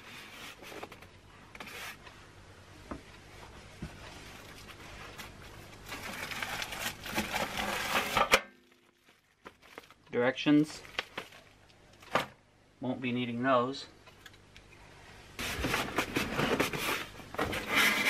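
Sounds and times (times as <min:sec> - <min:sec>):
packaging rustling and scraping: 0:00.0 - 0:02.0, 0:03.9 - 0:10.0, 0:10.8 - 0:11.6, 0:15.4 - 0:18.0.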